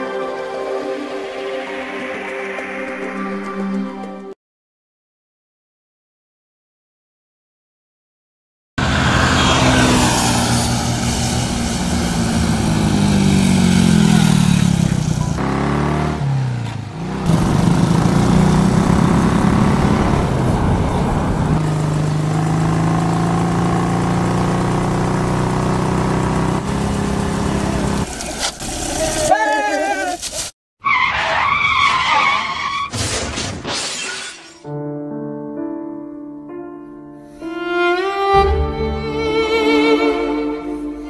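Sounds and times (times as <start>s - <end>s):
motorcycle engine passing: 8.8s - 28.2s.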